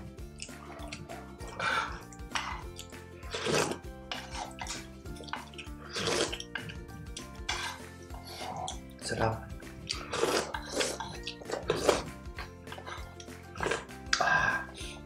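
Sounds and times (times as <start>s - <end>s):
background music: 0.0s - 15.0s
soup slurping: 0.3s - 9.0s, 9.8s - 14.8s.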